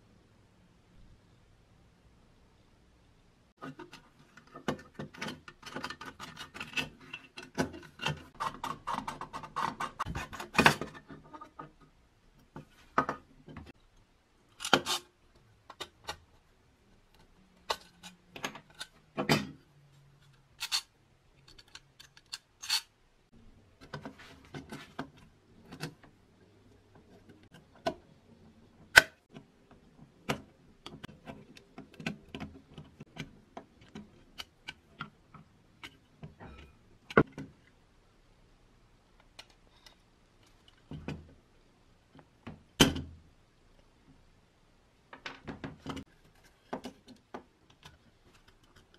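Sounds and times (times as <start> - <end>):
tinplate parts clicking: 20.3 - 22.9.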